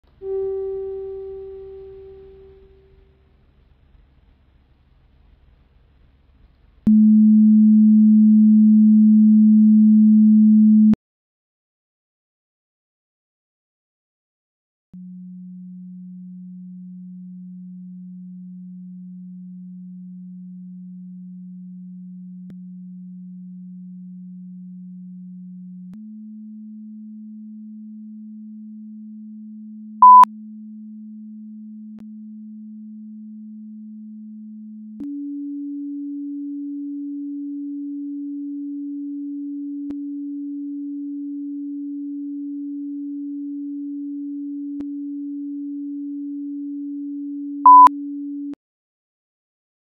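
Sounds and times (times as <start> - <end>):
pure electronic tone: 0.2 - 2.9, 6.9 - 11.0, 30.0 - 30.3, 41.3 - 47.9
short high beep: 30.0 - 30.3, 47.7 - 47.9.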